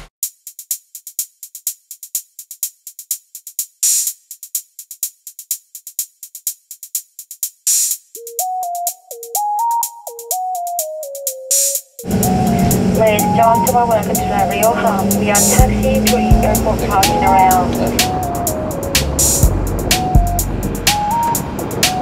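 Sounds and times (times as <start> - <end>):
drum machine hi-hat pattern: 0.0 - 22.0
stepping synth melody: 8.2 - 11.4, 12.0 - 22.0
cymbal-like swells: 12.1 - 22.0.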